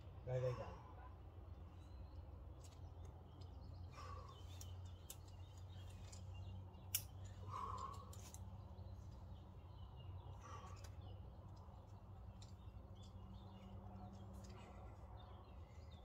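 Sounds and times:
rope and gear clicks: 4.5s - 9.2s.

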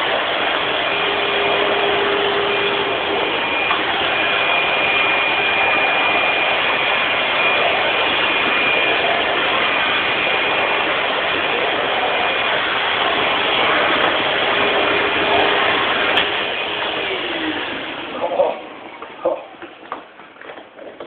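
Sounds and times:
vacuum cleaner running: 0.0s - 21.0s.

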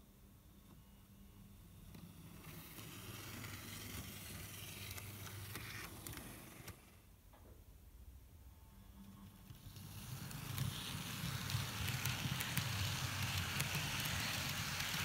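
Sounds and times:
model train motor whirring: 1.9s - 6.9s, 9.3s - 15.0s.

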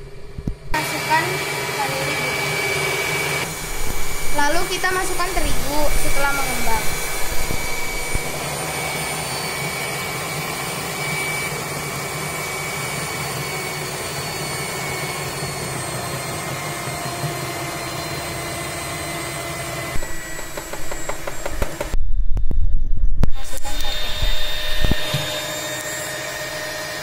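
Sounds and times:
stand mixer running: 0.1s - 22.0s, 23.5s - 27.0s
knocks: 20.4s - 22.0s.

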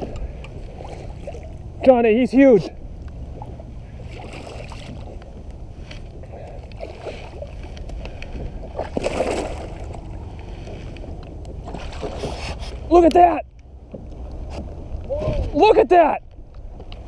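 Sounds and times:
low rumble: 0.0s - 15.6s
fish thrashing in water: 3.4s - 5.2s, 8.4s - 10.3s, 11.0s - 12.9s.

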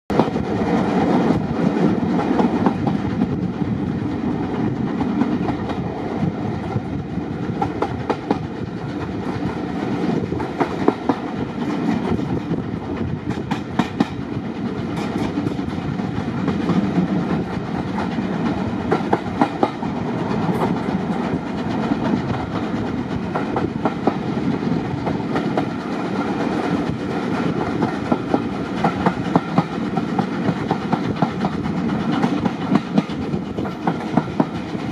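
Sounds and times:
railway carriage rumble: 0.1s - 34.9s
wheels clacking over rail joints: 7.6s - 34.9s.

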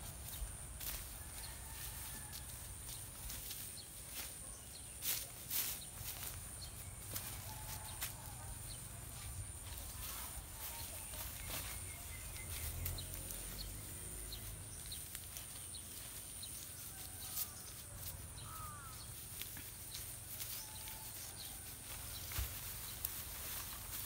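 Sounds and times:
bird chirps: 10.6s - 16.2s.

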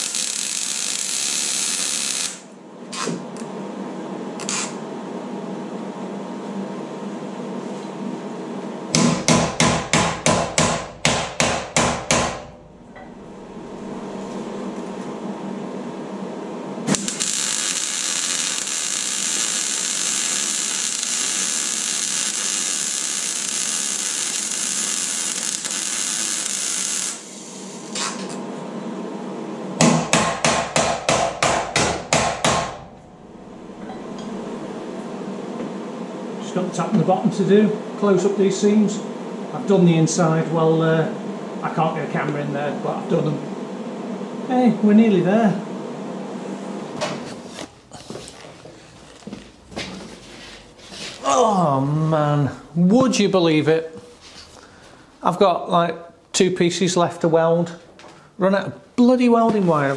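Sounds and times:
welder hissing: 0.0s - 3.1s, 16.9s - 28.3s, 50.0s - 52.8s
sharp rapid knocks: 9.0s - 12.5s, 29.8s - 32.8s.

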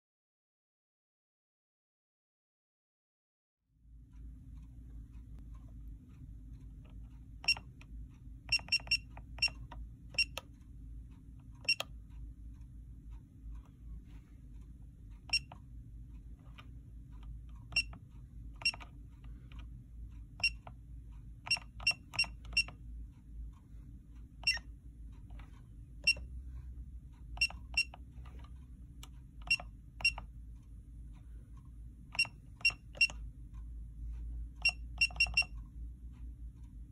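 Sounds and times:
faint low hum: 3.7s - 36.9s
keypad beeping: 7.4s - 7.7s, 8.5s - 10.5s, 11.6s - 11.9s, 15.3s - 15.6s, 17.7s - 18.0s, 18.6s - 19.0s, 20.4s - 20.8s, 21.5s - 22.8s, 24.4s - 24.7s, 26.0s - 26.3s, 27.4s - 28.4s, 29.4s - 30.3s, 32.1s - 33.2s, 34.6s - 35.6s.

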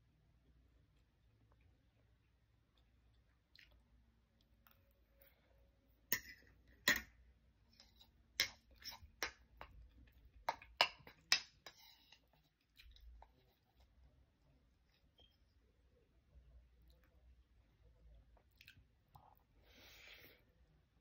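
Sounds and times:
quiet chewing: 0.8s - 5.6s, 11.8s - 20.2s.

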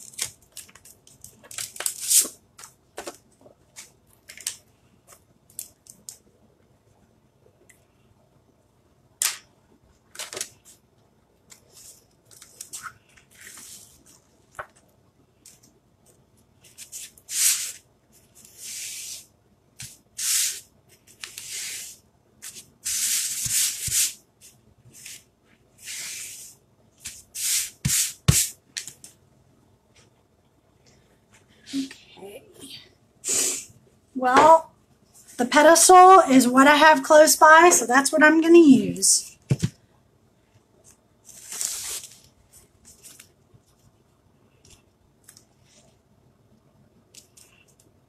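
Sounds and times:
hands rubbing stencil: 18.4s - 20.6s, 21.2s - 24.2s, 25.8s - 28.5s.

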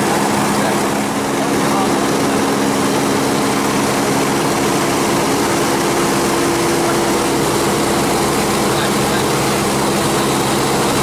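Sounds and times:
aircraft propeller drone: 0.0s - 11.0s.

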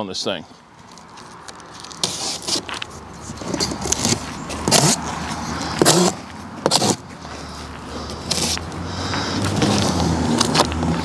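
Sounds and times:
cardboard scraping and ripping: 1.8s - 7.0s.

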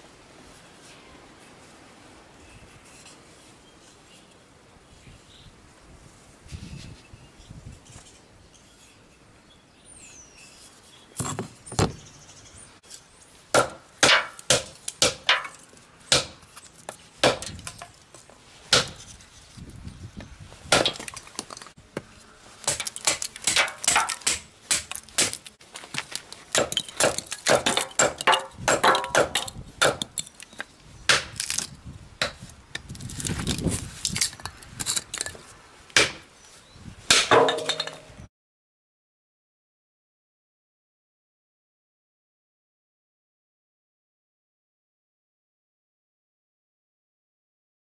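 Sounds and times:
hatchet chopping wood: 13.5s - 16.5s, 17.2s - 17.8s, 18.7s - 19.0s, 20.7s - 21.5s, 22.6s - 25.5s, 26.5s - 30.2s, 31.1s - 32.4s, 36.0s - 36.3s, 37.1s - 37.8s.

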